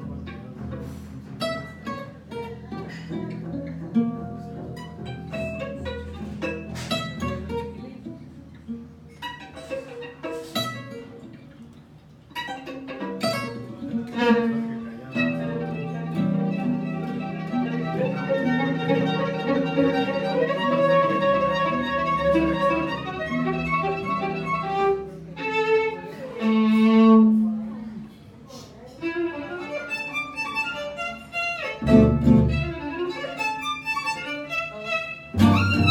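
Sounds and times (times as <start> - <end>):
double bass: 0.0 - 9.4, 13.4 - 25.4, 26.5 - 27.9, 31.8 - 33.1, 35.3 - 35.9
acoustic guitar strums: 0.8 - 7.8, 35.4 - 35.9
bowed violin melody: 12.3 - 27.7, 29.0 - 35.9.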